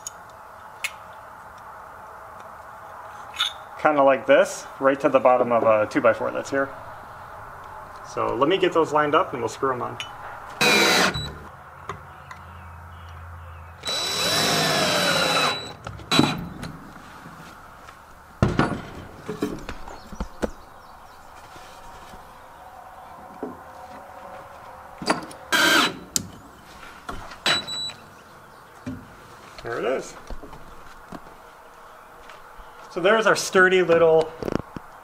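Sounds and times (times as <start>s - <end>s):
power drill driving screws: 10.6s - 11.4s, 13.8s - 16.4s, 25.5s - 26.0s.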